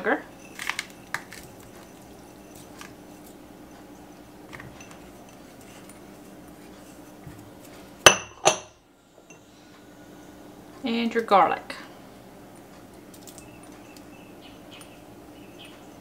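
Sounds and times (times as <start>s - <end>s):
ceramic ramekins clinking: 0.0s - 7.2s, 8.0s - 9.4s
faint handling sounds: 0.4s - 8.0s.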